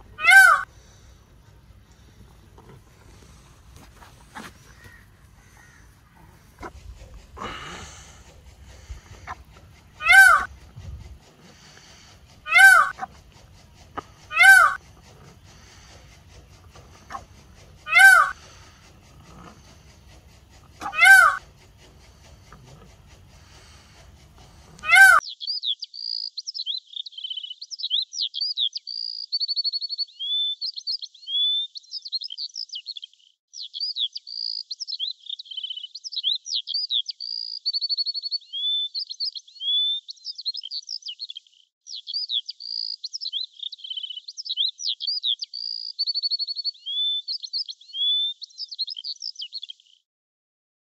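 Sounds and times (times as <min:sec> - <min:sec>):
peacock call: 0:00.0 - 0:00.9, 0:04.3 - 0:25.2
songbird singing: 0:00.0 - 0:50.0.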